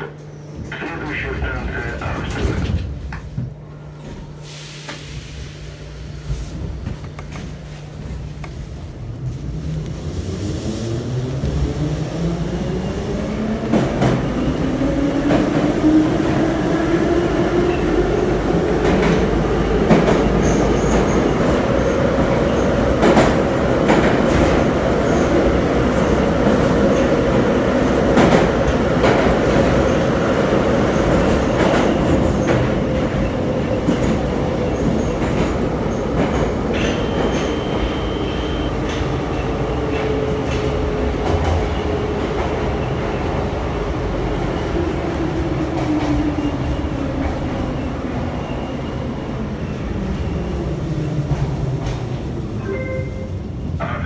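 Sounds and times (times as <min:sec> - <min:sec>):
metro train motor whine: 0:36.7 - 0:39.5.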